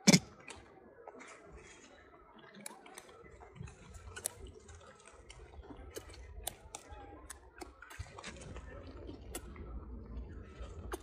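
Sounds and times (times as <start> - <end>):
small clicks and ticks: 2.5 - 8.6.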